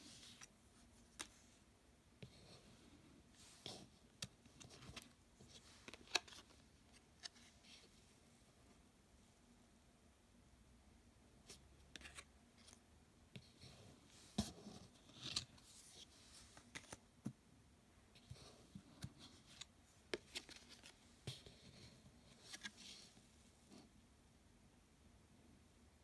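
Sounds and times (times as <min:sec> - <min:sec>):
cards sliding and tapping: 0:00.2 - 0:01.5, 0:03.6 - 0:07.8, 0:11.5 - 0:12.8, 0:14.3 - 0:17.4, 0:18.2 - 0:23.1.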